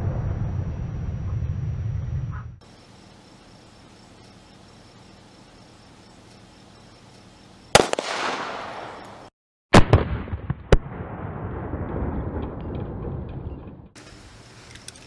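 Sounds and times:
handgun shots: 0:07.8 - 0:09.2.

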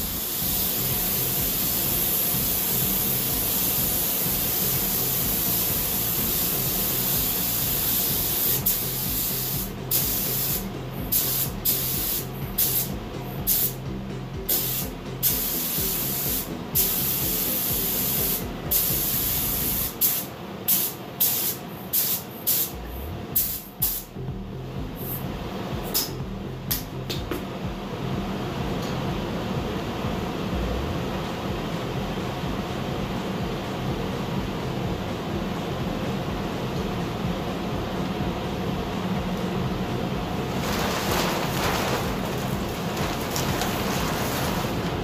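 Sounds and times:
paint spray gun hissing: 0:00.0 - 0:12.9, 0:13.5 - 0:13.8, 0:14.5 - 0:22.7, 0:23.4 - 0:24.1.

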